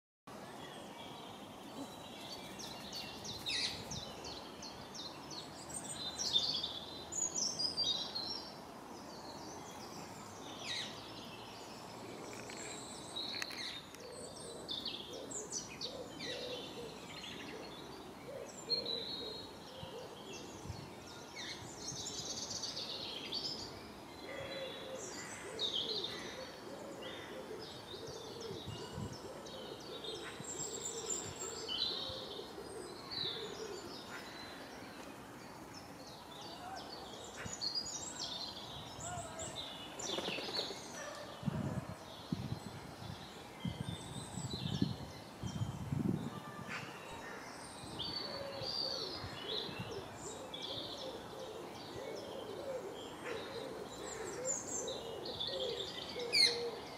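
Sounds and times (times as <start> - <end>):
birds singing and chirping: 0.5 - 56.9
lower repeated bird calls: 48.2 - 56.9.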